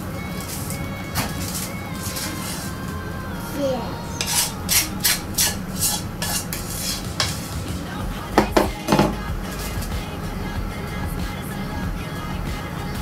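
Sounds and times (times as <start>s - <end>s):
spatula scraping a bowl: 0.3s - 2.9s, 4.1s - 10.0s
bowl knocking on table: 8.4s - 9.2s.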